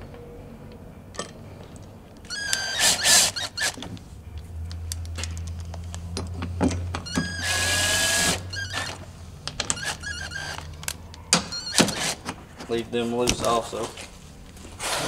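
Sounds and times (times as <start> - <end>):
cordless drill whirring: 2.3 - 3.8, 7.2 - 9.0.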